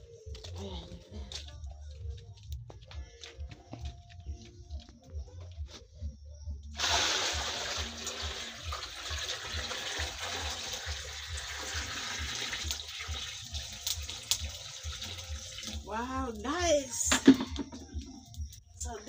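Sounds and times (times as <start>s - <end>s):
water pouring into metal pot: 6.8s - 16.4s.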